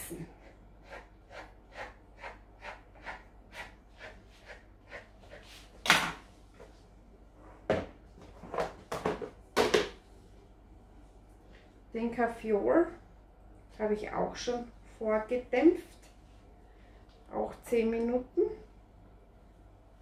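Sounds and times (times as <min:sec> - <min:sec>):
plastic containers knocking on counter: 0:08.6 - 0:10.0.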